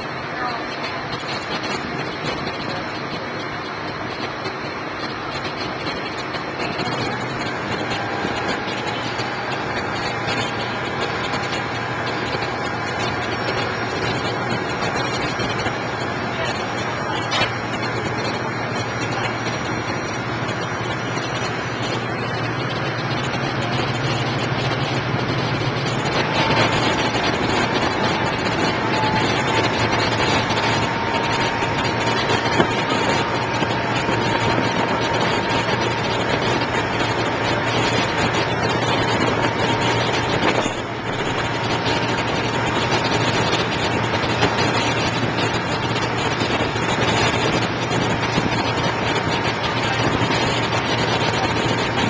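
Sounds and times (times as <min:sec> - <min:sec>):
boat engine humming: 0:00.0 - 0:52.0
rushing water: 0:00.0 - 0:52.0
thin high whine: 0:00.0 - 0:52.0.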